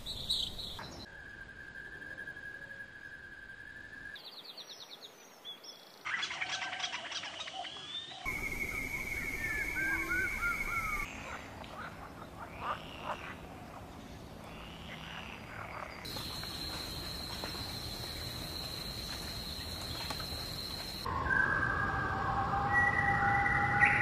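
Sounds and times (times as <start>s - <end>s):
bird calls: 6.0s - 21.1s
croaking animal calls: 9.5s - 21.0s
high-pitched whine: 16.1s - 24.0s.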